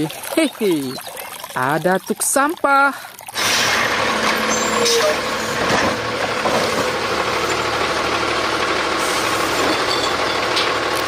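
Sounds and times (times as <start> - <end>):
garbage truck engine and hydraulics: 3.3 - 11.0.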